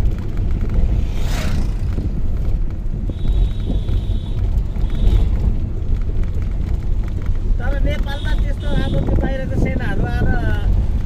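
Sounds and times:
rushing whoosh: 0:00.0 - 0:02.7
road and wind noise: 0:00.0 - 0:11.0
vehicle rumble from on board: 0:00.0 - 0:11.0.

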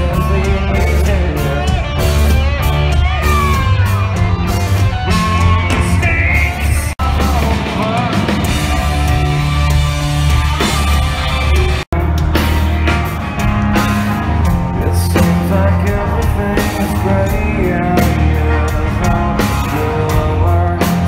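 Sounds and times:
rock band playing: 0:00.0 - 0:21.0
person singing: 0:05.0 - 0:21.0.

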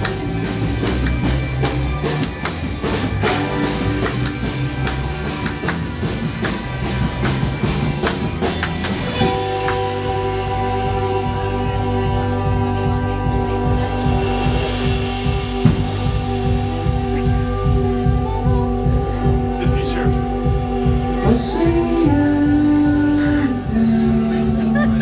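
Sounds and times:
drum kit beat: 0:00.0 - 0:25.0
guitar and bass: 0:00.0 - 0:25.0
held chords: 0:00.0 - 0:25.0.

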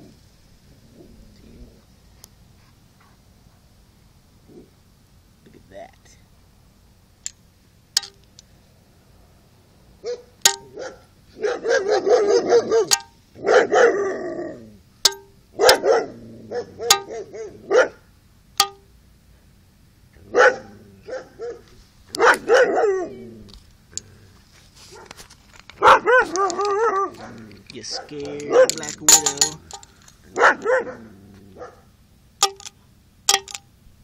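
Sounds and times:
dog barking: 0:10.0 - 0:14.1, 0:15.6 - 0:18.0, 0:20.3 - 0:23.2, 0:25.8 - 0:28.8, 0:30.3 - 0:31.9.

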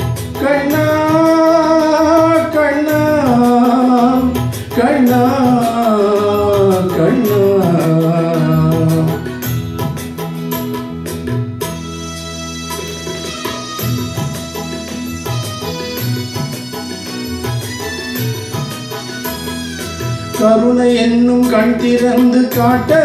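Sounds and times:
man singing into microphone: 0:00.0 - 0:09.5, 0:20.4 - 0:23.0
backing track with tabla: 0:00.0 - 0:23.0.

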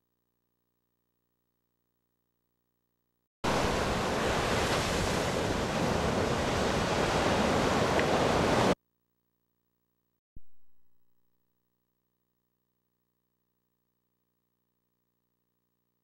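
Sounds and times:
ocean surf rushing: 0:03.4 - 0:08.8.

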